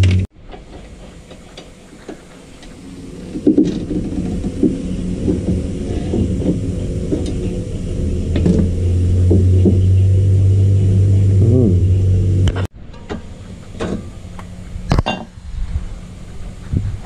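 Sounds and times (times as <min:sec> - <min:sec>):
metallic knocks and clunks: 0:00.0 - 0:10.3, 0:12.5 - 0:14.2
steady low hum: 0:00.0 - 0:17.0.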